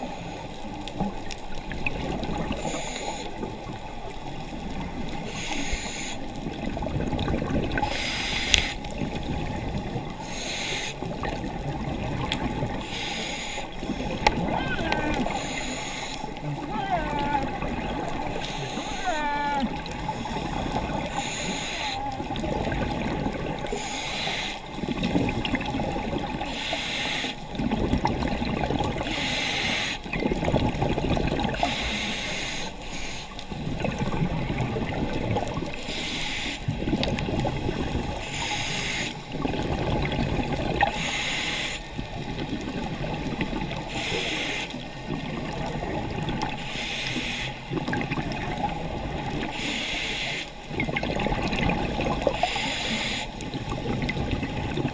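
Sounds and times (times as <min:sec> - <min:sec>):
exhaled air bubbling: 0:00.0 - 0:54.9
regulator inhale hiss: 0:02.5 - 0:03.5, 0:05.2 - 0:06.3, 0:07.8 - 0:09.0, 0:10.2 - 0:11.2, 0:12.8 - 0:14.3, 0:15.2 - 0:16.4, 0:18.3 - 0:19.2, 0:20.0 - 0:22.0, 0:23.6 - 0:24.8, 0:26.4 - 0:27.5, 0:29.0 - 0:30.1, 0:31.5 - 0:33.5, 0:35.8 - 0:36.8, 0:38.2 - 0:39.3, 0:40.9 - 0:42.0, 0:43.8 - 0:44.8, 0:46.5 - 0:47.7, 0:49.4 - 0:50.6, 0:52.3 - 0:53.5.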